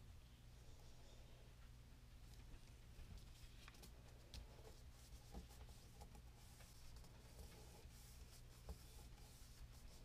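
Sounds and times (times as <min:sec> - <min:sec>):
paper rubbing: 0:04.6 - 0:10.0.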